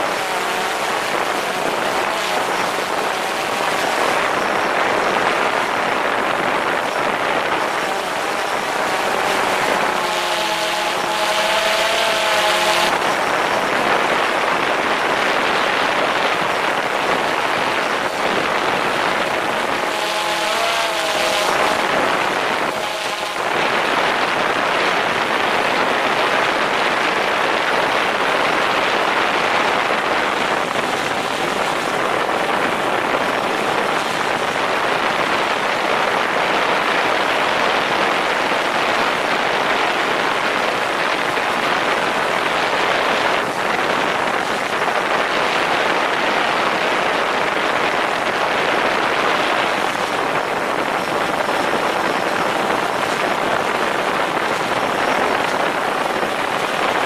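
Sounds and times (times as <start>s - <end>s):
drone propellers humming: 0.0s - 25.2s
wavering motor tone: 6.8s - 13.8s, 18.1s - 23.5s.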